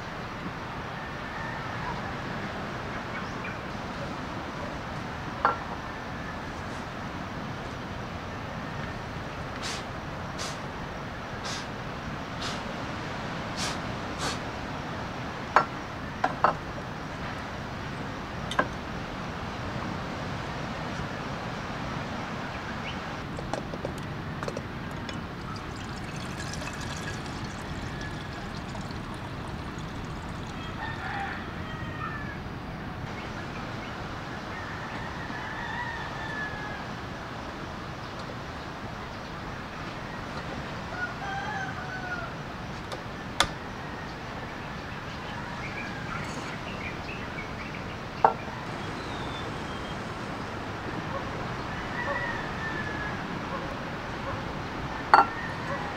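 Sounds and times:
rooster crowing and clucking: 0:00.9 - 0:02.6, 0:25.0 - 0:32.5, 0:34.5 - 0:37.2, 0:40.8 - 0:42.5, 0:51.1 - 0:53.6, 0:54.9 - 0:55.9
steady background hiss: 0:02.6 - 0:55.5
water pouring into kettle: 0:24.9 - 0:31.1.

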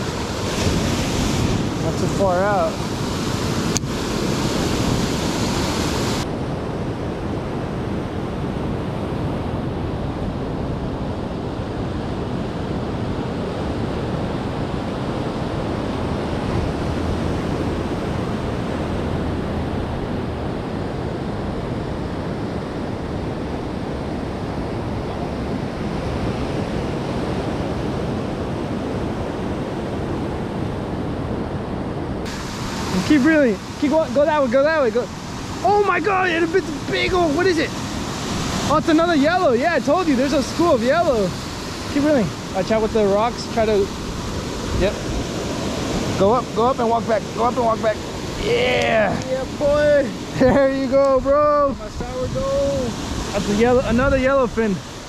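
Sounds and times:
surf breaking on rocky shore: 0:00.0 - 0:09.9, 0:11.6 - 0:30.8, 0:32.0 - 0:55.0.

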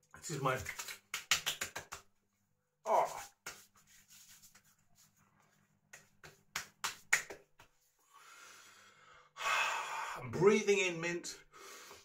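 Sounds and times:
hands slapping face: 0:00.5 - 0:02.2, 0:02.9 - 0:05.1, 0:05.9 - 0:07.9
soft breath: 0:08.0 - 0:10.2.

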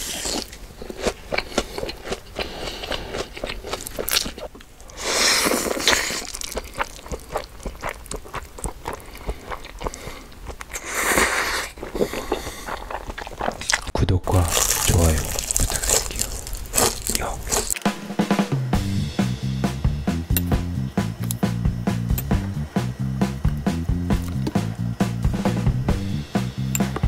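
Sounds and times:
crunchy bites and chewing: 0:00.0 - 0:17.9, 0:20.2 - 0:22.5, 0:23.3 - 0:25.3
noisy bursts: 0:14.0 - 0:27.0.

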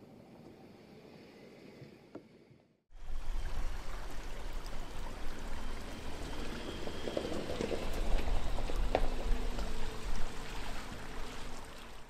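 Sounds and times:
stream running over stones: 0:03.0 - 0:12.0.

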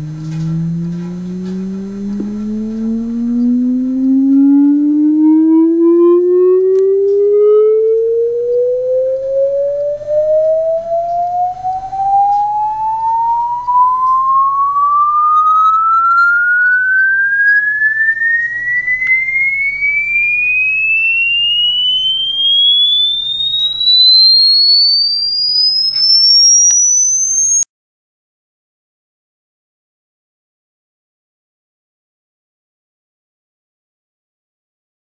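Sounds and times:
low steady hum: 0:00.0 - 0:25.0
rising test tone: 0:00.0 - 0:27.7.

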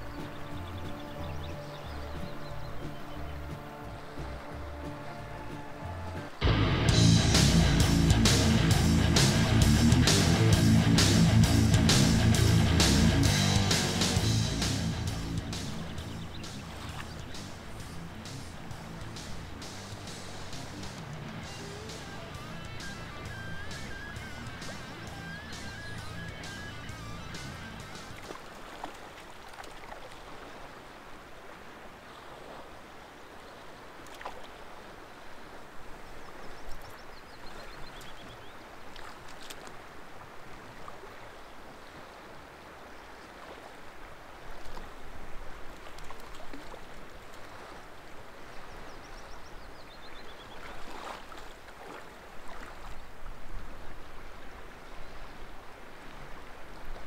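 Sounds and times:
small bird singing: 0:00.0 - 0:03.5, 0:15.5 - 0:17.4, 0:23.0 - 0:27.4
flowing water: 0:00.0 - 0:57.0.

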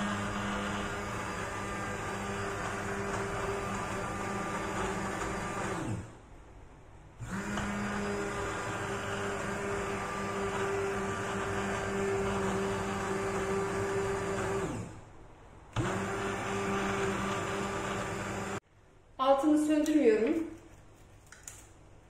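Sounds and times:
immersion blender motor whining: 0:00.0 - 0:06.2, 0:07.2 - 0:15.0, 0:15.8 - 0:18.6.

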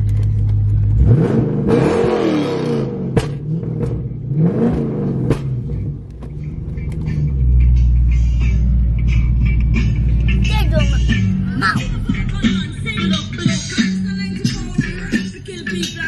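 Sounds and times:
car engine revving: 0:00.0 - 0:16.0
exhaust pops and crackles: 0:03.1 - 0:04.1.

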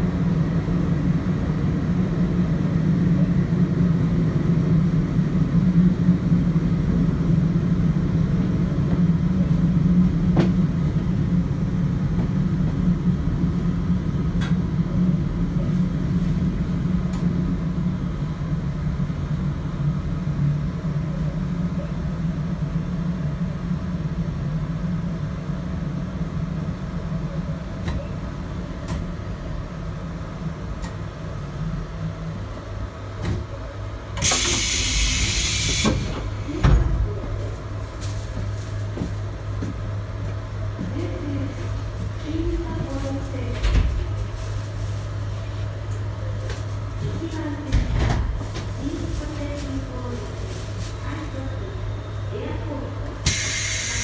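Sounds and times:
hiss of released air: 0:34.2 - 0:36.2, 0:53.2 - 0:54.0.

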